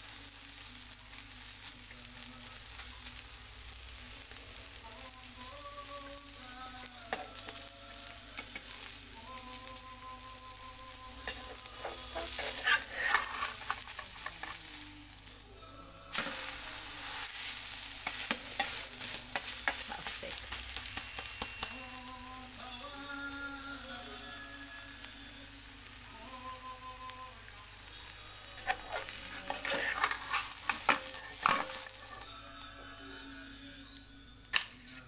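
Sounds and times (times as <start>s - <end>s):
omelette sizzling in a pan: 0.0s - 34.4s
metal spatula scraping a pan: 11.2s - 14.8s, 16.1s - 21.7s, 28.5s - 32.3s.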